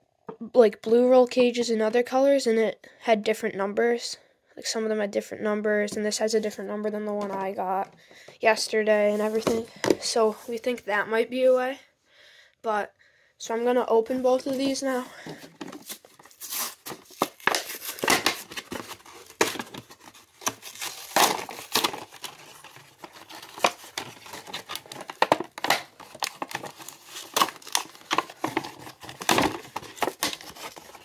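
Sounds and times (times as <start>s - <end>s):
plastic blister pack crinkling: 14.4s - 31.0s
cardboard ripping: 15.4s - 31.0s.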